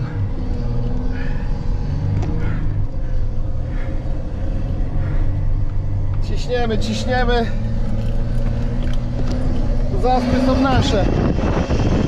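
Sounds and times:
van engine rumbling: 0.0 - 12.0.

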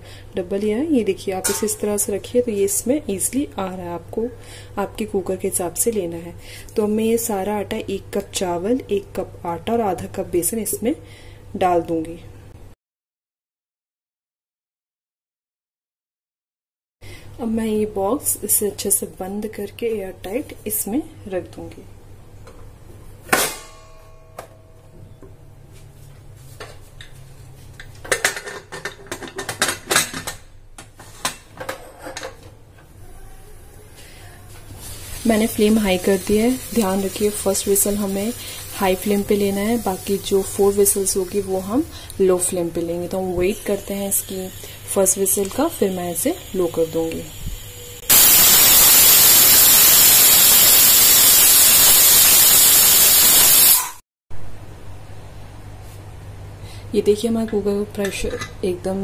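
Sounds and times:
pressure cooker steam hissing: 43.6 - 54.0.

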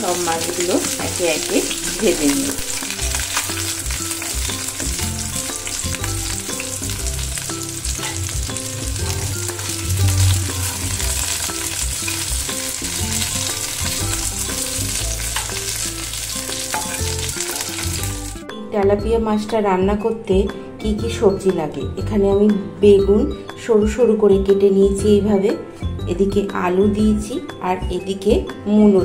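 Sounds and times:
fish sizzling in hot oil: 0.0 - 18.4
metal spatula scraping pan: 16.6 - 17.8.

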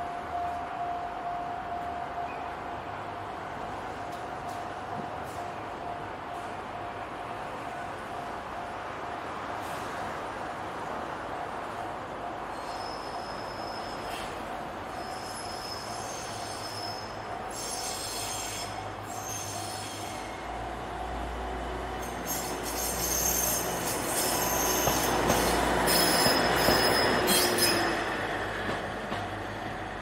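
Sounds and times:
train wheel noise: 13.2 - 30.0.

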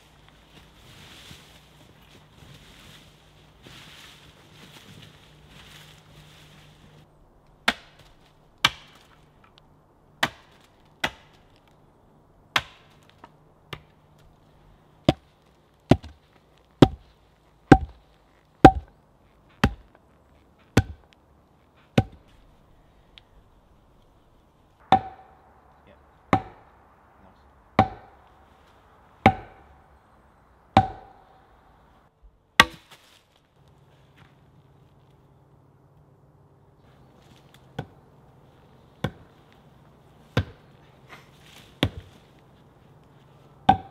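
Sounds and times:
axe chopping wood: 7.6 - 9.2, 10.2 - 11.4, 12.5 - 14.0, 15.0 - 15.3, 15.9 - 16.2, 16.8 - 17.0, 17.7 - 18.0, 18.6 - 18.9, 19.6 - 19.9, 20.7 - 21.1, 21.9 - 22.2, 24.8 - 25.4, 26.3 - 26.7, 27.8 - 28.2, 29.2 - 29.7, 30.8 - 31.2, 32.6 - 33.0, 39.0 - 39.3, 40.3 - 40.6, 41.8 - 42.2, 43.7 - 43.9.

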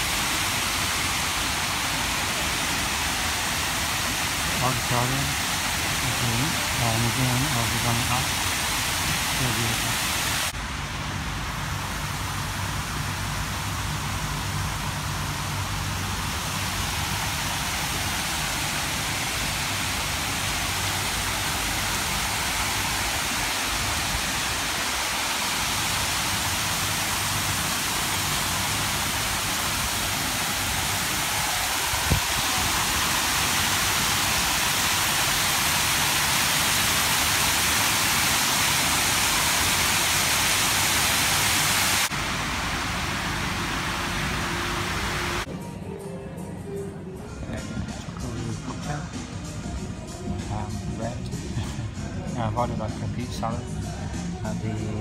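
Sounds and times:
fountain jets splashing into pool: 0.0 - 10.6, 11.7 - 45.5.

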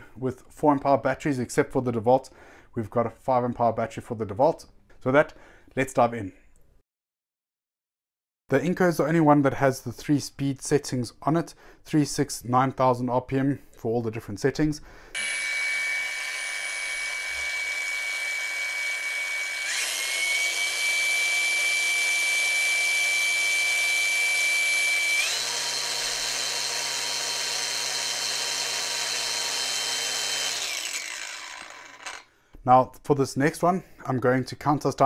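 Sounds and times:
angle grinder whining: 15.2 - 32.3
grinder disc spinning down: 15.2 - 32.3.

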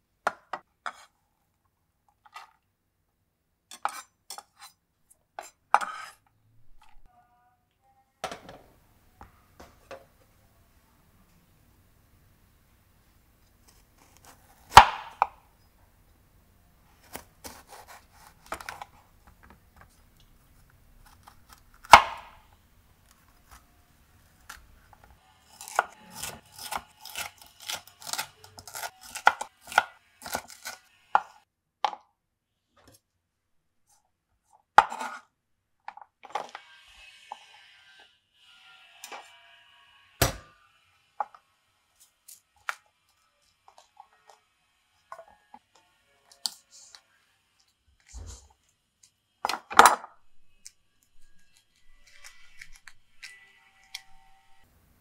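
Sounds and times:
knife slicing pepper: 17.0 - 19.0, 25.5 - 31.4, 50.5 - 54.6.

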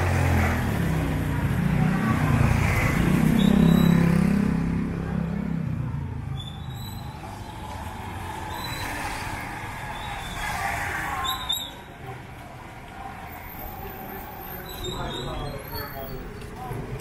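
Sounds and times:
vehicle engine passing by: 0.0 - 11.2
street noise: 0.0 - 17.0.

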